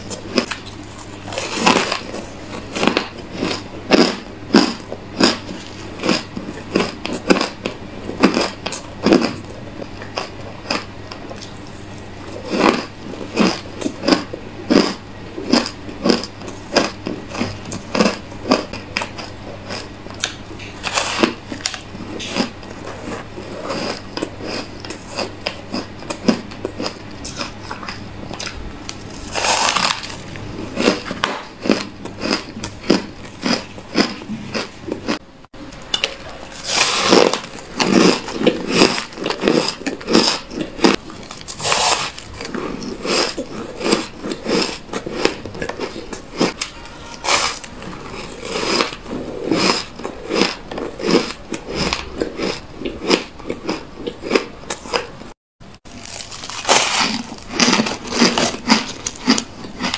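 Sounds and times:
ice chunks crunching: 0:29.1 - 0:30.2, 0:55.9 - 0:59.9.

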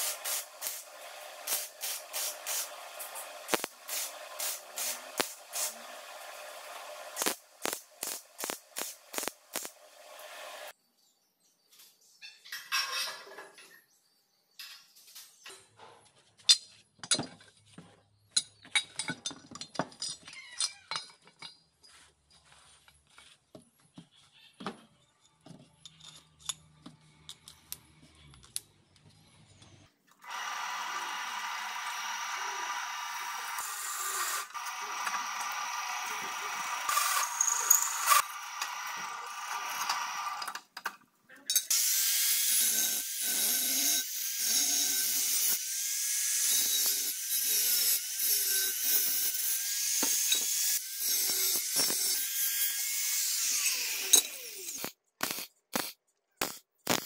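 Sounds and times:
electric welding crackling: 0:00.0 - 0:10.7, 0:54.6 - 0:57.0
drill press cutting steel: 0:30.2 - 0:40.5.

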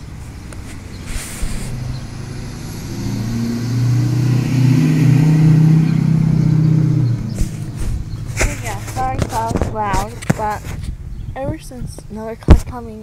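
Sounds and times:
car driving by: 0:00.0 - 0:09.8.

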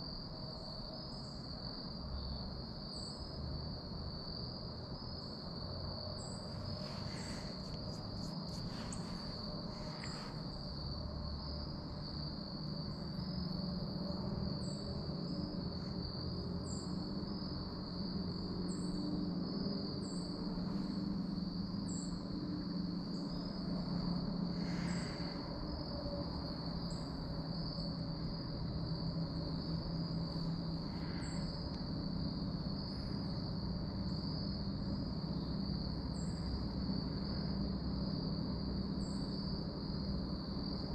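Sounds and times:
insects trilling: 0:00.0 - 0:40.9
low steady rumble: 0:03.2 - 0:40.9
soft rustles: 0:06.6 - 0:10.5.

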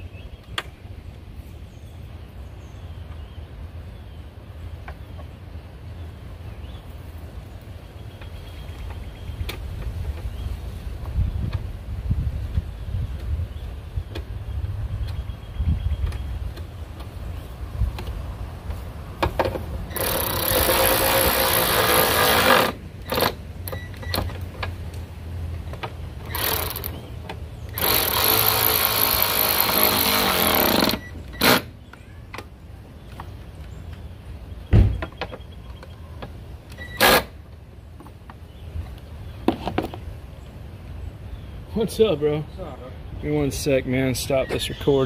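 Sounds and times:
power driver whirring: 0:19.9 - 0:24.3, 0:26.2 - 0:27.1, 0:27.7 - 0:31.7.

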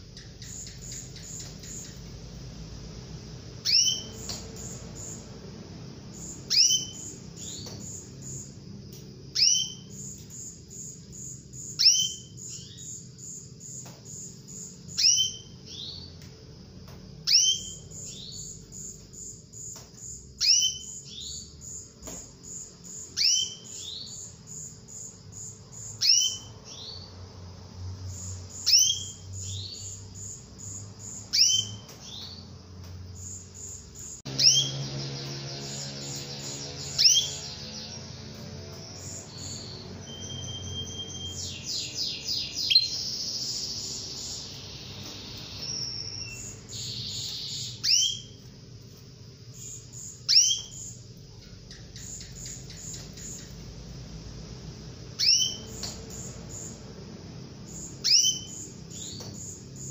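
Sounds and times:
canary whistle call: 0:03.6 - 0:04.3, 0:06.5 - 0:07.7, 0:09.4 - 0:10.0, 0:11.8 - 0:12.9, 0:14.9 - 0:15.6, 0:17.3 - 0:18.4, 0:20.4 - 0:21.1, 0:23.2 - 0:24.2, 0:26.0 - 0:26.5, 0:31.3 - 0:31.8, 0:34.3 - 0:34.9, 0:36.4 - 0:37.5, 0:39.3 - 0:44.4, 0:45.5 - 0:48.4, 0:50.3 - 0:50.9, 0:55.2 - 0:55.8, 0:58.0 - 0:59.1.

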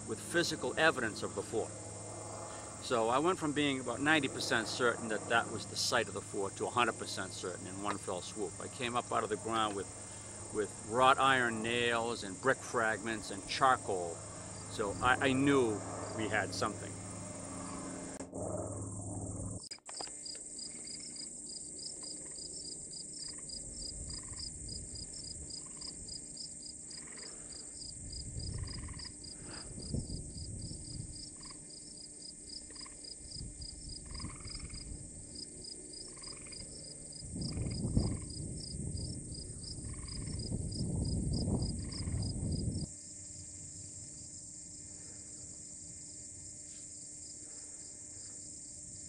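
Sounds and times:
low rumbling noise: 0:00.0 - 0:19.6
high insect hiss: 0:00.0 - 0:49.0
insects chirping: 0:00.0 - 0:49.0
lower insect call: 0:00.0 - 0:49.0.

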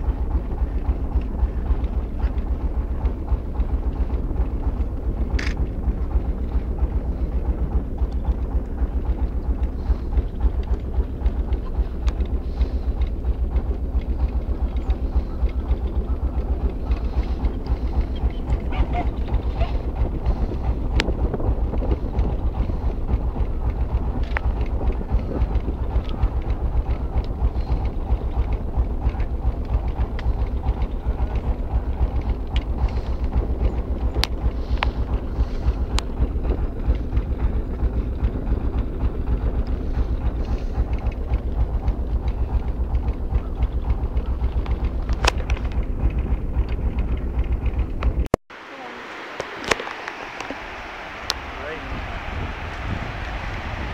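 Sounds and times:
boat engine chugging: 0:00.0 - 0:53.9
sharp clicks: 0:04.8 - 0:05.8.

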